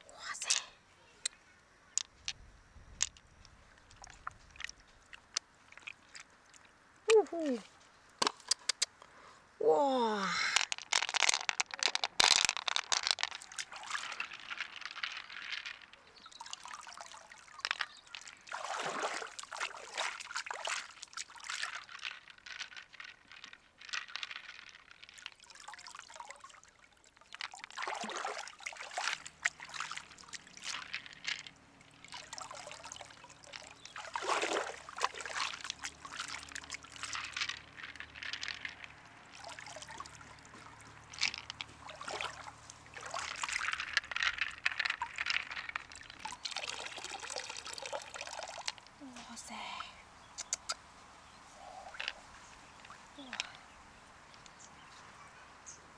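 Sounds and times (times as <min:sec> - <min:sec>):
stream water sloshing and splashing: 0:03.7 - 0:07.8, 0:12.5 - 0:22.7, 0:25.1 - 0:49.0.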